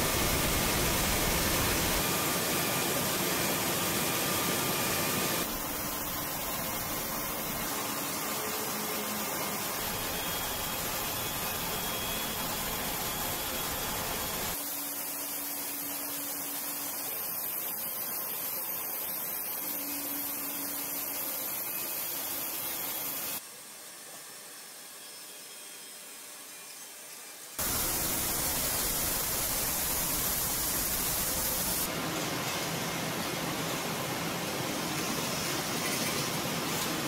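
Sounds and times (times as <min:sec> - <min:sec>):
steel-plant machinery noise: 0:27.6 - 0:33.9.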